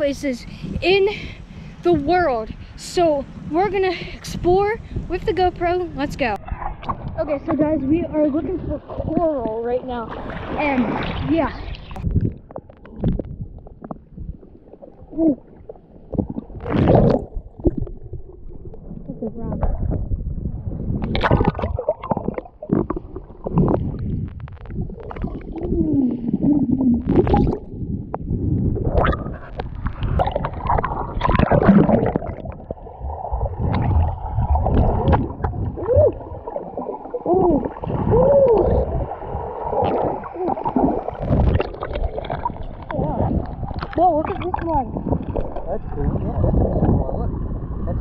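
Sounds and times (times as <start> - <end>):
muffled water sloshing and gurgling: 0.0 - 48.0.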